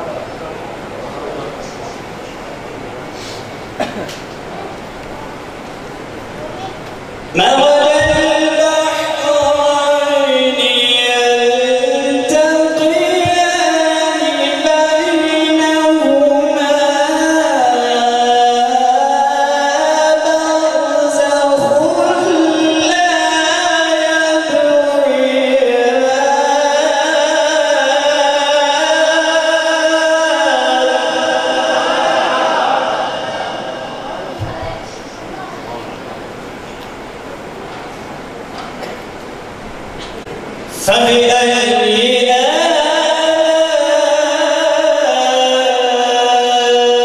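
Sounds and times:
man reciting melodically: 7.2 - 34.0, 40.7 - 47.0.

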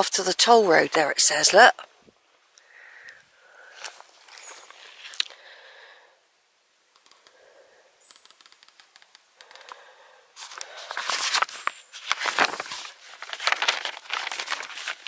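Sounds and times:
paper sheet rustling and crackling: 10.4 - 15.0.

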